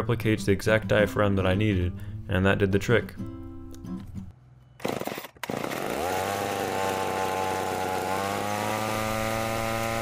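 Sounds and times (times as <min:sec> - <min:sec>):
chainsaw engine starting and revving: 0:04.8 - 0:10.0.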